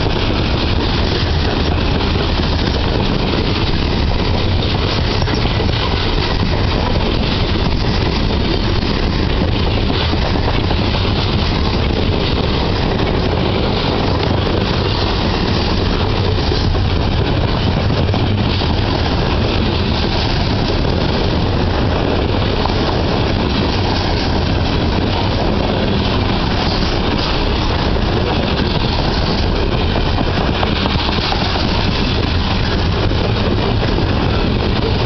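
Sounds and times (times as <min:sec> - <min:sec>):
freight train wheels clattering: 0:00.0 - 0:35.0.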